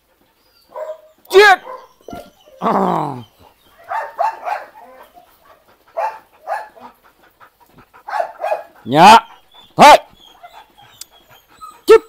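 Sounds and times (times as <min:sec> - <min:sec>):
dog barking: 0:00.7 - 0:02.3, 0:03.8 - 0:07.0, 0:08.0 - 0:08.8.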